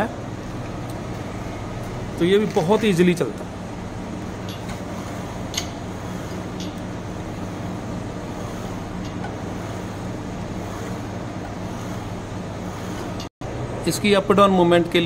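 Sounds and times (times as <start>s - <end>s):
electric machine hum: 0.0s - 15.0s.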